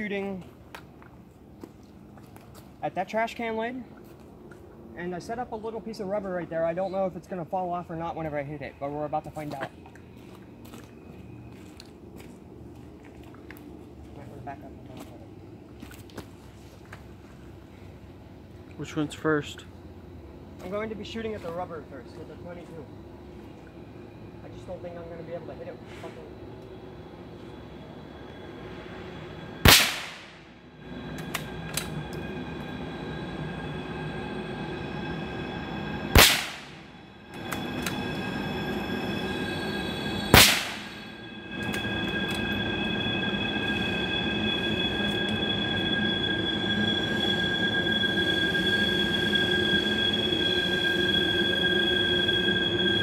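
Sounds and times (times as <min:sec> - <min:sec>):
distant train wheels squealing: 0:05.0 - 0:12.5, 0:17.4 - 0:53.0
rifle shots: 0:29.7 - 0:30.3, 0:36.2 - 0:36.7, 0:40.4 - 0:40.9.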